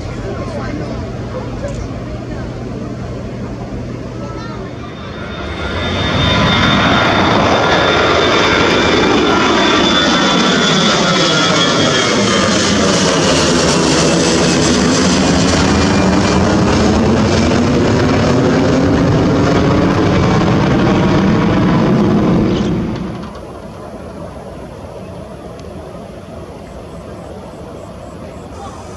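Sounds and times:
jet airliner engines roaring: 0.0 - 28.9
high whine sliding down: 4.1 - 12.6.

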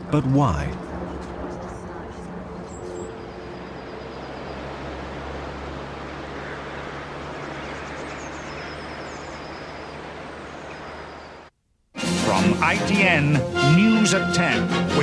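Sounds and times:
faint bird chirps: 6.2 - 11.5.

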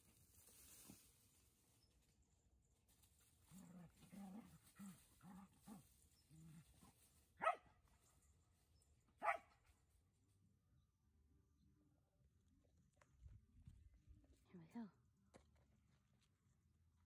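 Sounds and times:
dog barking: 7.4 - 7.7, 9.2 - 9.5.

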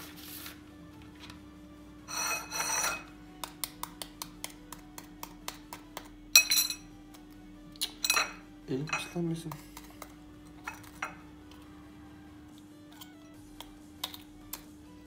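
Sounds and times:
knife cracking eggshells: 3.4 - 6.2, 12.9 - 14.7.

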